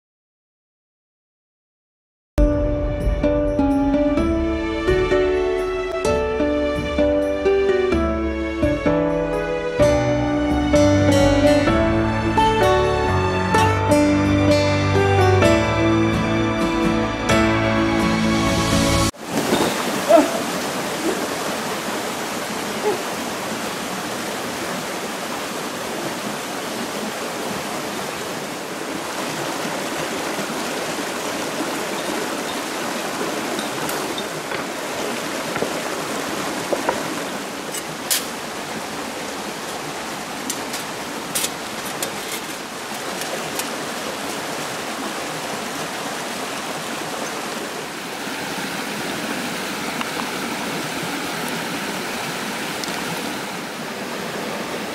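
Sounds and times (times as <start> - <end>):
stream running over rocks: 19.1 - 54.9.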